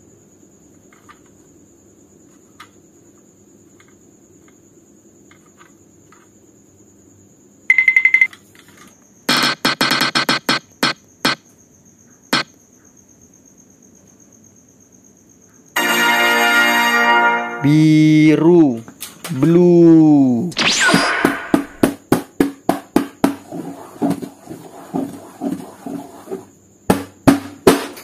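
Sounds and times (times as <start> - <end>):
prize wheel ticking: 7.7 - 8.3
short electronic beep: 7.7 - 8.3, 20.6 - 21.8.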